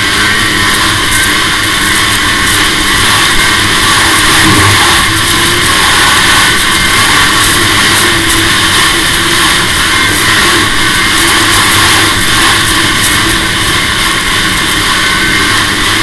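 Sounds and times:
snowmobile engine running: 0.0 - 16.0
loud rushing noise: 4.3 - 5.8.

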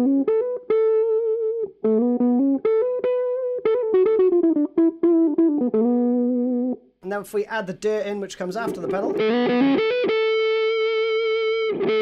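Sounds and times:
clean electric guitar riff: 0.0 - 6.8, 8.2 - 12.0.

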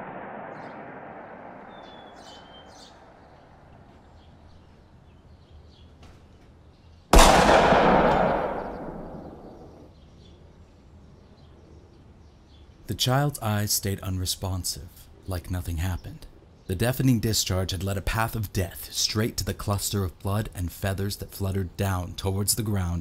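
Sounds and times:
shotgun blast: 0.0 - 3.0, 7.2 - 9.9
faint bird chirps: 0.4 - 7.1.

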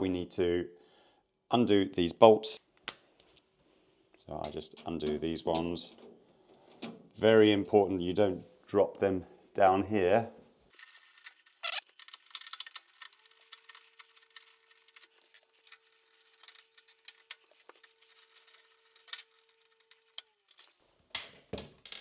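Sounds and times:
screwdriver clicking and scraping metal: 10.8 - 20.8.

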